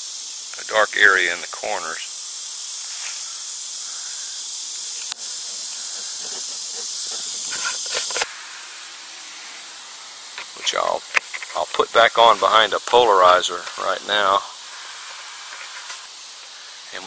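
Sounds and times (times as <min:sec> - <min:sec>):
insects chorus: 0:00.0 - 0:17.0
handling sounds: 0:05.0 - 0:08.3.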